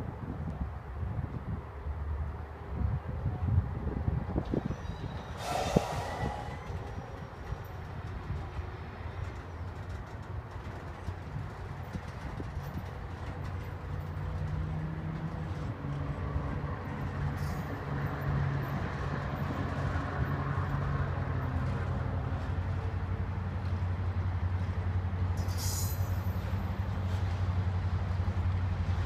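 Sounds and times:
freight cars rumbling on rails: 0:00.0 - 0:29.0
high wheel squeal: 0:04.6 - 0:08.1.

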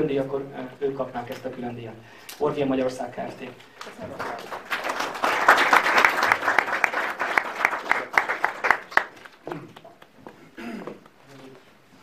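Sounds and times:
audience applauding: 0:03.8 - 0:10.2.

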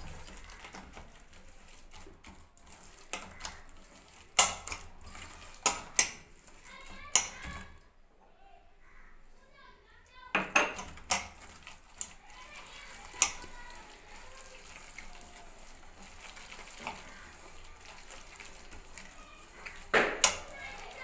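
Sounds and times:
hand squelching wet batter: 0:00.0 - 0:07.8, 0:11.1 - 0:21.0
clinks against steel bowl: 0:13.0 - 0:13.6, 0:19.6 - 0:21.0.

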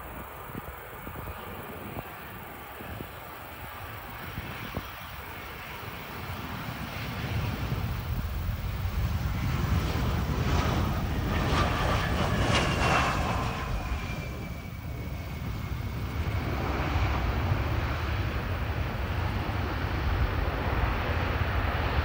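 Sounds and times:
wind rumbling on microphone: 0:00.0 - 0:22.0
jet engines whining: 0:03.6 - 0:22.0.

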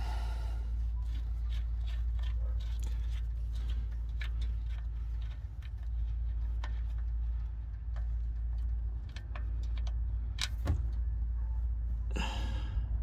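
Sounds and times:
steady low hum: 0:00.0 - 0:13.0
metallic clicks and scrapes: 0:00.7 - 0:10.7.

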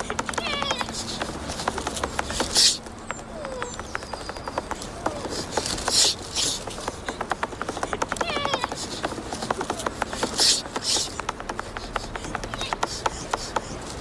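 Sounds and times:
loud hissing rushes: 0:00.0 - 0:02.9
puppy whimpering: 0:00.0 - 0:13.8
quick light taps: 0:00.0 - 0:14.0.

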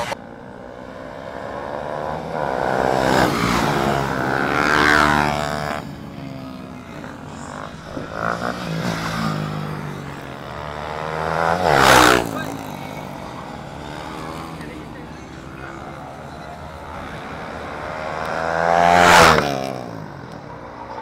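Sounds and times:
motorcycle engine accelerating: 0:00.0 - 0:21.0.

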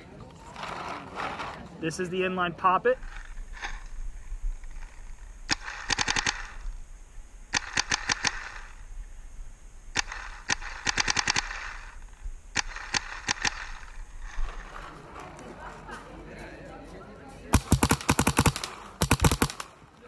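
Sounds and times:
paintball marker rapid firing: 0:04.6 - 0:06.8, 0:07.5 - 0:08.9, 0:09.9 - 0:14.8, 0:17.5 - 0:19.9.

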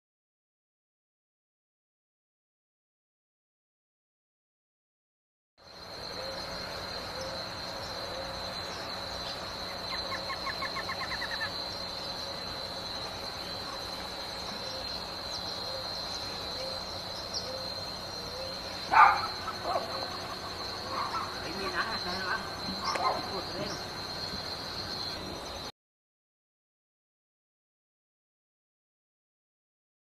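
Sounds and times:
high-pitched insect buzz: 0:05.6 - 0:25.7.

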